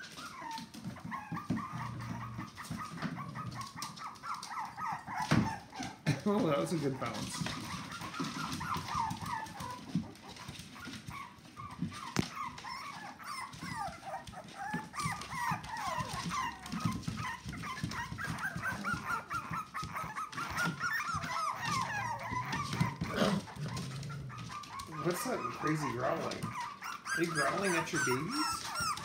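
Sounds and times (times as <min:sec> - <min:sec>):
puppies whimpering and squealing: 0:00.0 - 0:29.0
adult dog growling low: 0:01.4 - 0:03.6, 0:21.4 - 0:26.6.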